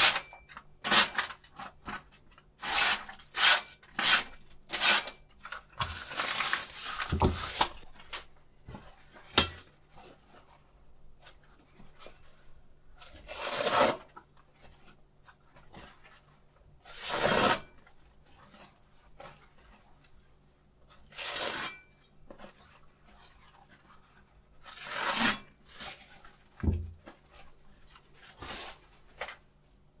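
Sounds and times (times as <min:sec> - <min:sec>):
knife slicing paper: 0:00.0 - 0:02.0, 0:02.6 - 0:05.2, 0:16.9 - 0:17.7, 0:24.6 - 0:26.1.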